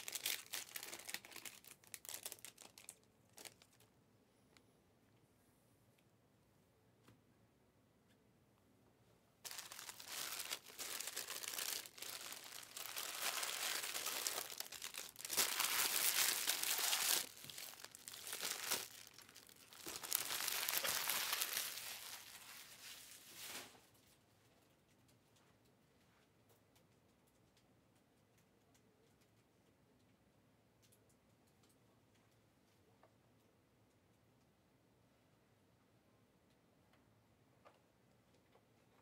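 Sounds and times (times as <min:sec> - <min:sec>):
packaging crinkling: 0:00.0 - 0:03.9, 0:09.4 - 0:23.6.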